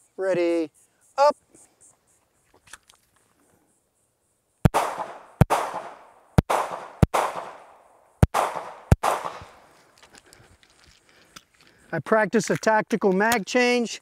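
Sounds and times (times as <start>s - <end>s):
pistol shots with ringing echo: 4.6s - 9.6s.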